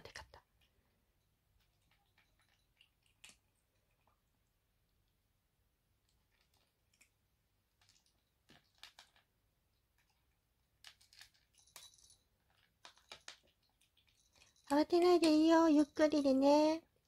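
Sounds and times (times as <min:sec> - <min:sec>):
kitten chewing dry kibble: 0:00.4 - 0:05.2, 0:06.0 - 0:14.7.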